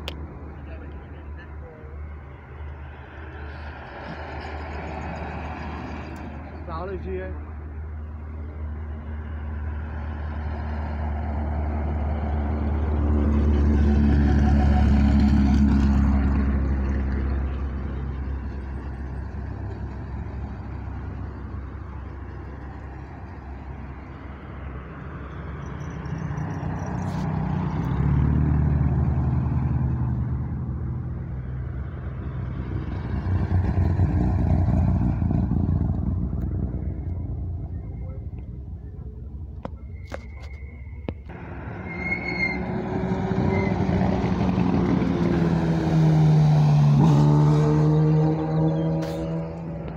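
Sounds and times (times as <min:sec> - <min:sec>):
race cars driving past: 0:00.0 - 0:40.0, 0:40.6 - 0:49.9.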